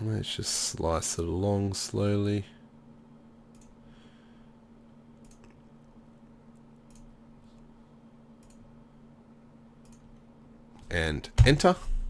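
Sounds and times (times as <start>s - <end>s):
low steady hum: 0.0s - 12.0s
faint computer mouse clicks: 3.5s - 3.8s, 5.2s - 5.6s, 6.8s - 7.1s, 8.4s - 8.6s, 9.8s - 10.1s.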